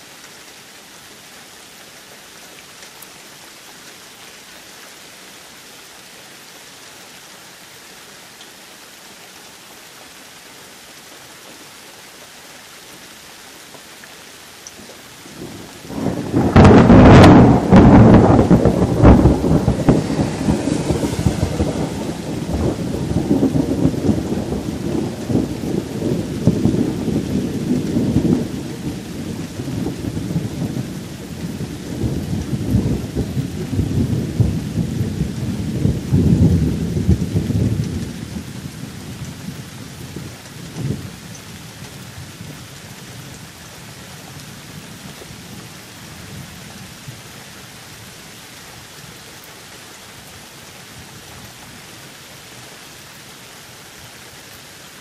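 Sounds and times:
steady rain: 0:00.0 - 0:55.0
thunder rumbling: 0:15.4 - 0:41.3.

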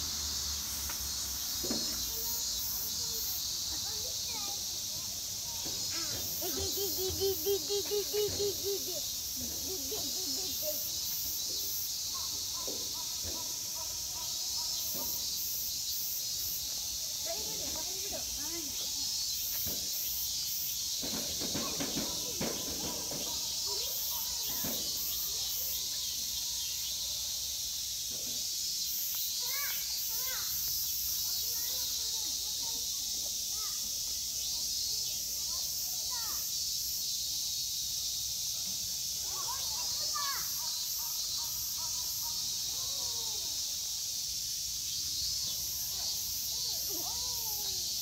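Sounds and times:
insects chirring: 0:00.0 - 0:48.0
steady high hiss: 0:00.0 - 0:48.0
faint distant voices: 0:16.2 - 0:28.7.

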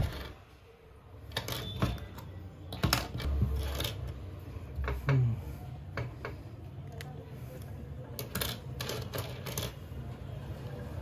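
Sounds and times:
plastic parts clicking and rattling: 0:01.3 - 0:04.2, 0:08.1 - 0:09.9.

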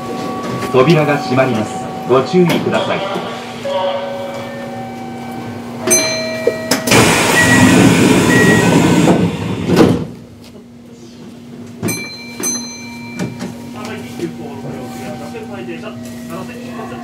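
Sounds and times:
pneumatic doors rush of air: 0:06.9 - 0:10.2.

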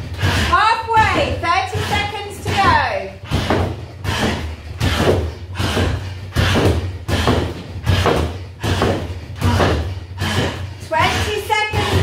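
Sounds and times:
kicks thudding into punch bag: 0:01.9 - 0:11.2.

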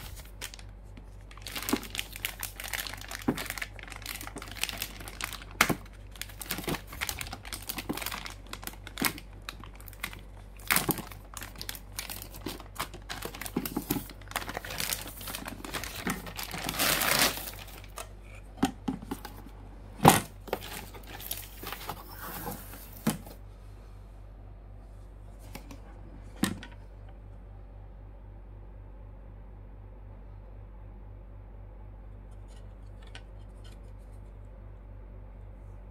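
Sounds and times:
plastic bag crinkling: 0:00.0 - 0:18.4, 0:20.4 - 0:23.0.

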